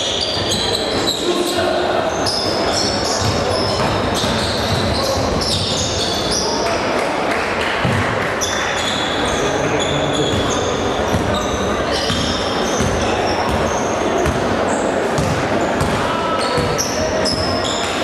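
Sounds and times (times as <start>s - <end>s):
sneakers squeaking on hardwood: 0.0s - 1.4s, 2.1s - 6.6s, 7.8s - 18.0s
voices in gym hall: 0.0s - 18.0s
basketball dribbling thuds: 12.0s - 14.5s, 15.2s - 17.4s.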